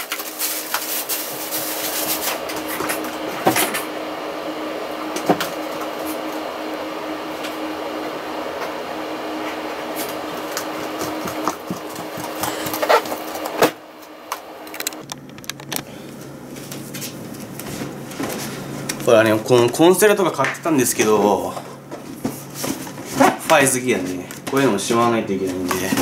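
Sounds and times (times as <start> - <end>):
machine whirring: 0.0 - 16.0.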